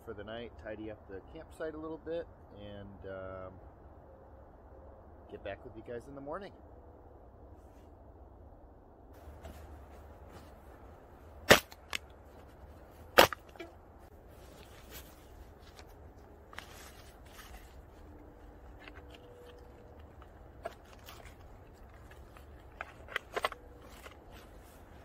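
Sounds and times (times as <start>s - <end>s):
nylon sack rustling: 9.2s - 25.0s
cans crushed under a boot: 18.7s - 24.6s.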